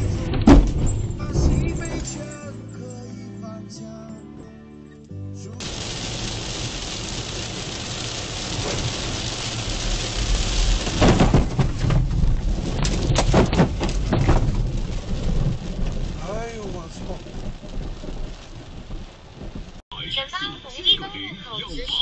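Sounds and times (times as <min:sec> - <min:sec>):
spray splashing on glass: 0:05.6 - 0:11.0
tyre noise on wet road: 0:05.6 - 0:19.8
rain hitting car windshield: 0:05.6 - 0:20.2.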